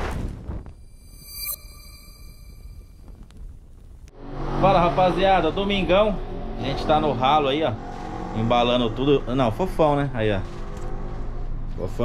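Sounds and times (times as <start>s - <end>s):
ringing synthetic tone: 0.8s - 3.0s
loud whoosh: 0.9s - 3.0s.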